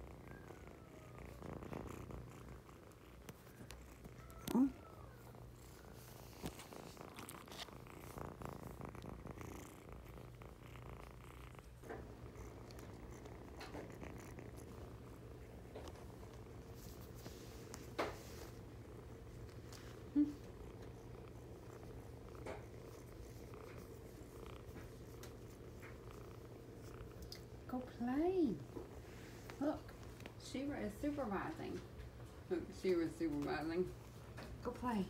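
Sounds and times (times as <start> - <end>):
kitten purring: 0.0 - 35.0
small bumps and rustles: 1.2 - 10.4, 11.0 - 18.7.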